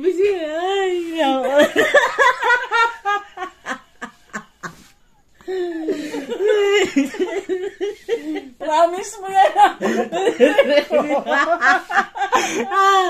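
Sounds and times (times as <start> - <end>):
man and woman laughing: 1.4 - 8.6, 9.5 - 13.0.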